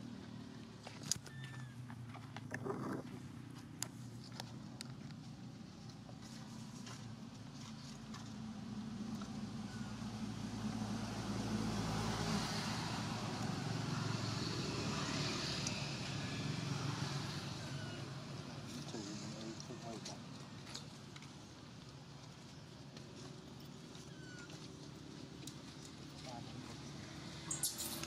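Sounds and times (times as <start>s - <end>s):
vehicle passing by: 7.6s - 20.2s, 25.2s - 28.0s.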